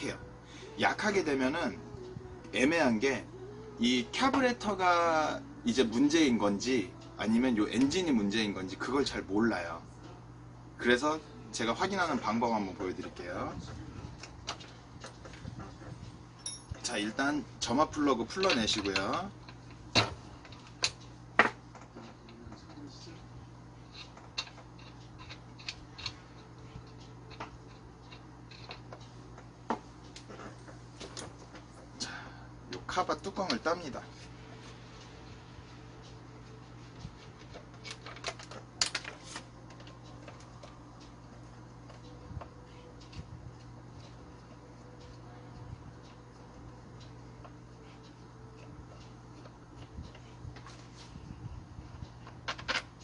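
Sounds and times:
steady low hum: 0.0 - 53.0
screwdriver ticks and clicks: 23.9 - 26.2.

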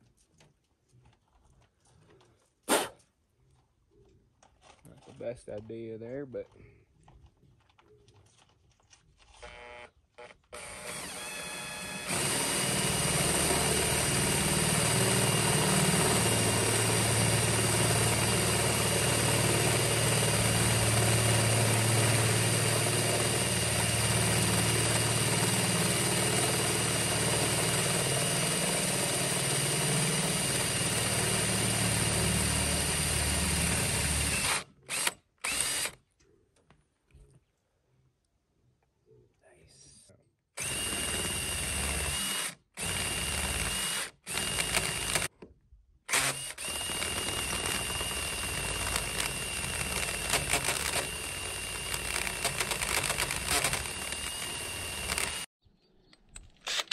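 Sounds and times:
cordless drill whining: 9.3 - 36.0, 40.6 - 45.3, 46.1 - 55.5, 56.4 - 56.9.

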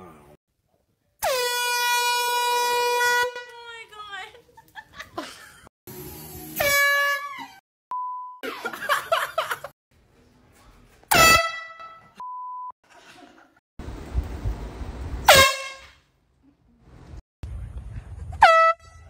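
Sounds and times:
air horn blasts: 1.2 - 3.6, 6.6 - 7.4, 11.1 - 12.1, 15.2 - 16.0, 18.4 - 19.0.

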